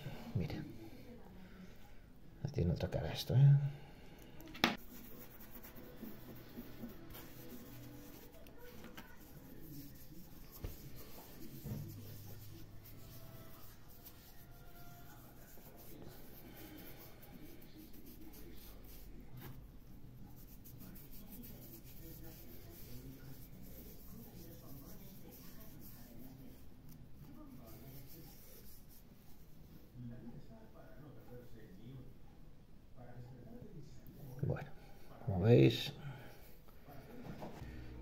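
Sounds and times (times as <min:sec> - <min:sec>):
fingers scrubbing a coin: 0:04.9 - 0:19.0.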